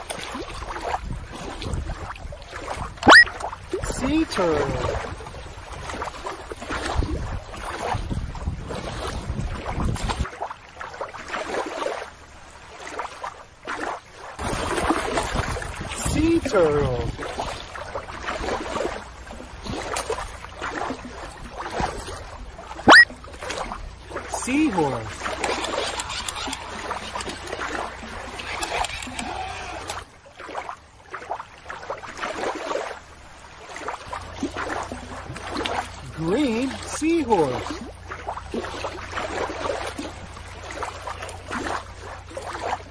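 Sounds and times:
wind rumbling on microphone: 0.0s - 10.3s, 14.4s - 24.3s
water lapping and splashing: 0.0s - 42.9s.

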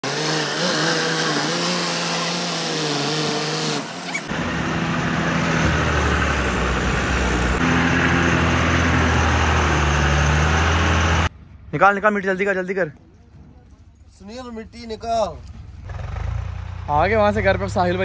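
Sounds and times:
heavy vehicle engine running: 3.8s - 11.4s, 15.6s - 18.0s.

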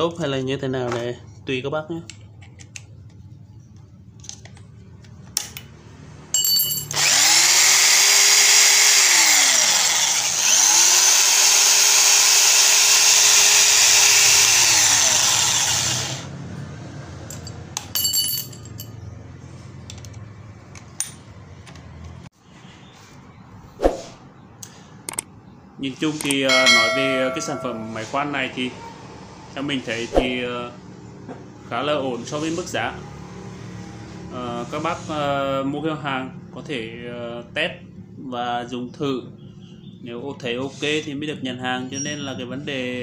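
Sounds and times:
electric drill whining: 6.9s - 16.3s
short drill bursts: 6.9s - 16.3s.

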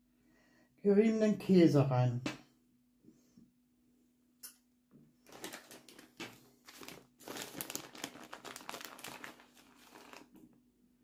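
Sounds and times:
plastic bag crinkling: 5.3s - 10.6s.

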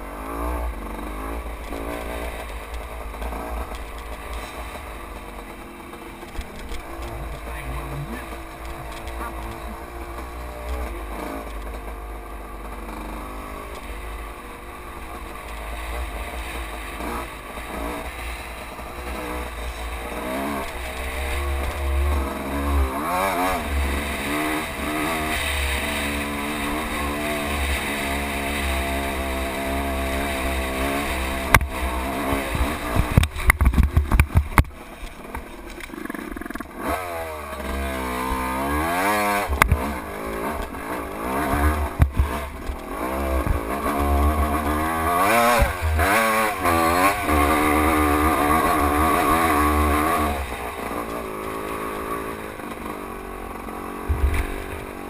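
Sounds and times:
dirt bike engine revving: 0.0s - 55.0s
sharp clattering knocks: 31.4s - 36.7s, 41.5s - 44.8s
wind rumble on microphone: 31.5s - 34.8s.

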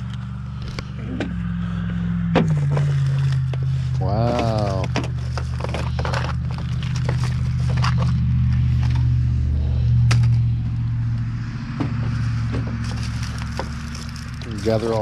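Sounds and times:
engine idling: 0.0s - 15.0s
food packages rustling: 2.6s - 9.4s, 12.2s - 15.0s.

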